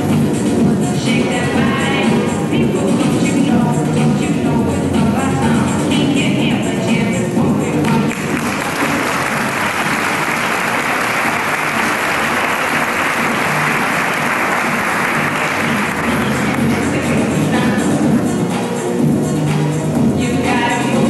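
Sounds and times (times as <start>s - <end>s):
music: 0.0s - 21.0s
audience clapping: 7.8s - 17.0s.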